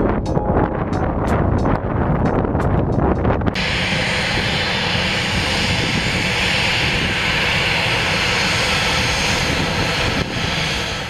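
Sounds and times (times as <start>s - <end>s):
jet engines roaring: 3.6s - 11.0s.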